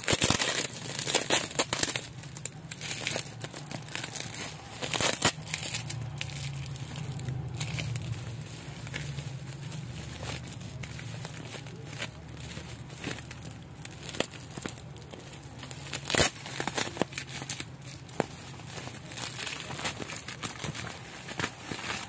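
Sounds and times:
bubble wrap crackling: 0.0s - 22.0s.

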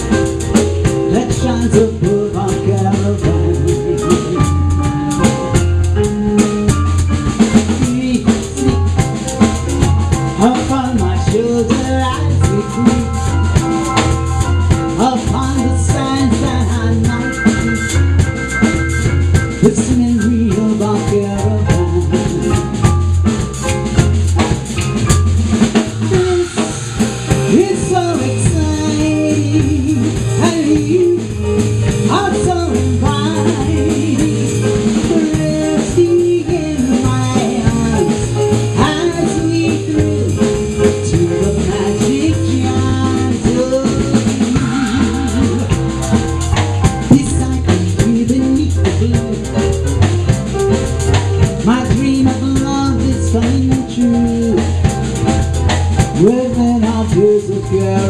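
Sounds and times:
drum kit with rimshots: 0.0s - 58.0s
electric bass guitar: 0.0s - 58.0s
electric keyboard: 0.0s - 58.0s
woman singing: 1.0s - 5.3s, 7.4s - 8.8s, 10.3s - 13.5s, 14.9s - 17.8s, 19.6s - 22.9s, 26.0s - 45.9s, 47.0s - 49.8s, 51.6s - 55.0s, 56.1s - 58.0s.

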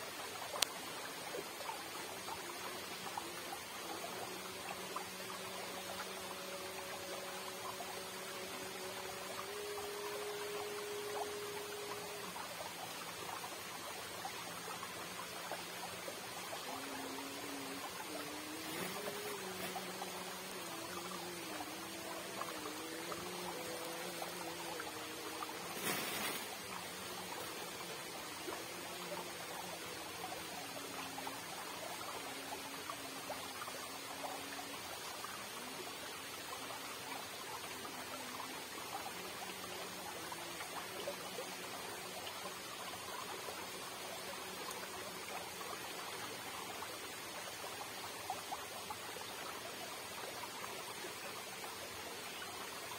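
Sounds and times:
water rushing and trickling: 0.0s - 52.9s.

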